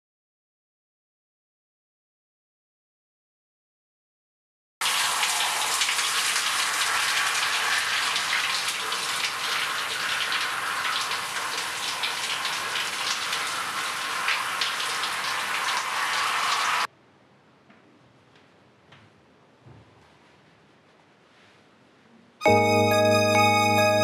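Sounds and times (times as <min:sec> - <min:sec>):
shower water spraying: 0:04.8 - 0:16.9.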